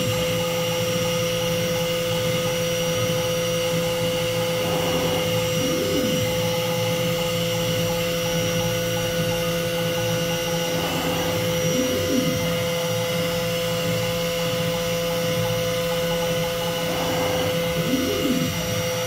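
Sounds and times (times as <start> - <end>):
cnc spindle whine: 0.0 - 19.0
rising-and-falling motor tones: 4.2 - 6.6, 10.3 - 13.0, 16.5 - 19.0
dust extraction: 4.3 - 6.4, 10.5 - 12.6.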